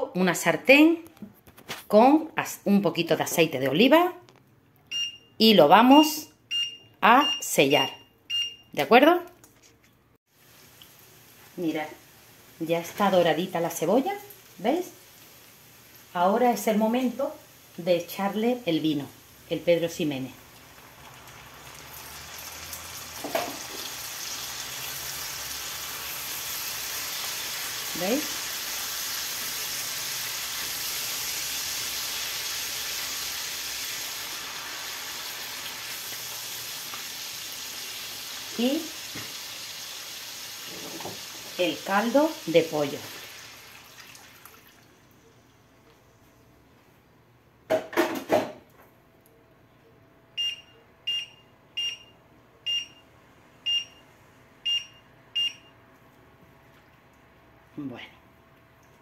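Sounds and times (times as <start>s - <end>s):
induction hob beeps: 4.9s - 8.8s, 50.4s - 53.0s, 53.7s - 54.0s, 54.6s - 55.7s
onions sizzling in a pan: 10.3s - 44.5s.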